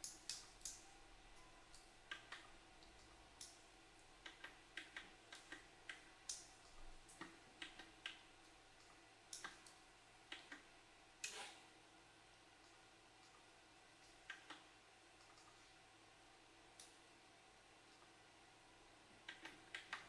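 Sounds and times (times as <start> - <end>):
faint sharp clicks and taps: 1.4 - 11.4, 12.6 - 15.7, 19.2 - 20.0.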